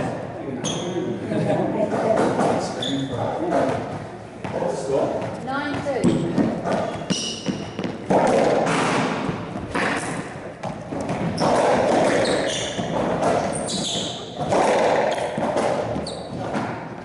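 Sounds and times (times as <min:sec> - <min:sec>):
shoes squeaking on court floor: 0:00.6 - 0:01.2, 0:02.2 - 0:17.0
racquetball bouncing off walls: 0:03.4 - 0:17.0.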